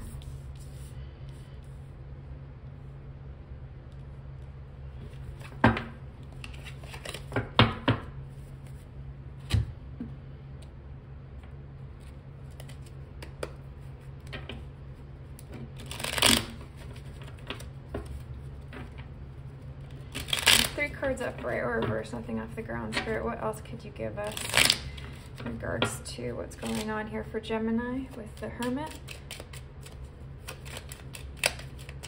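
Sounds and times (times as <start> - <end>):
cards rustling and sliding: 0.0 - 1.8, 5.0 - 5.6, 6.2 - 7.5, 12.0 - 19.1, 19.8 - 21.4, 28.2 - 32.0
cards snapping and slapping: 6.3 - 7.6, 12.5 - 13.6, 15.8 - 17.7, 20.0 - 20.8, 24.3 - 25.3, 28.9 - 32.0.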